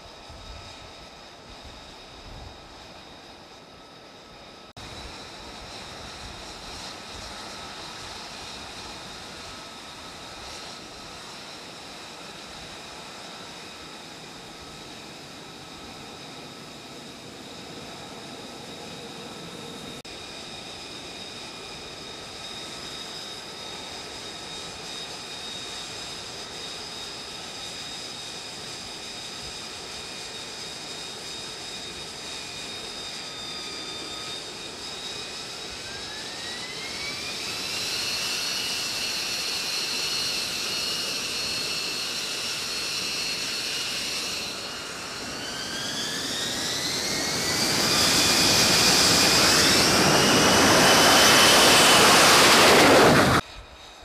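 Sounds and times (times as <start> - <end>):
jet engine whine spooling up: 0.0 - 54.0.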